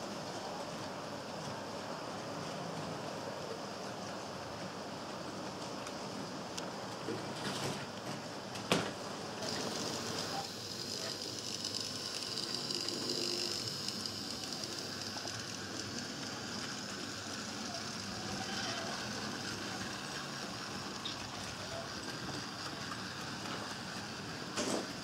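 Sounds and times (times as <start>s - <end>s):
steady high whine: 8.3s - 25.0s
model train wheels rattling: 9.3s - 25.0s.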